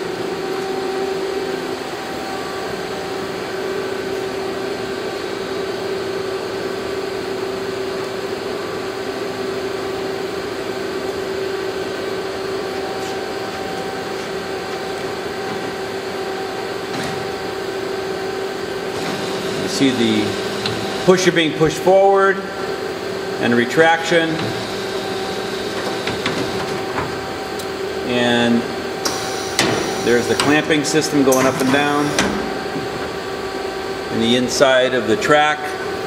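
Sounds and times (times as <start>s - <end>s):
lathe machine humming: 8.1s - 34.3s.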